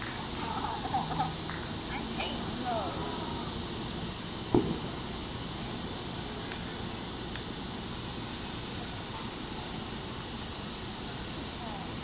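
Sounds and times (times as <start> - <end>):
outdoor rumble and hiss: 0.0 - 12.0
short low thud: 4.5 - 4.9.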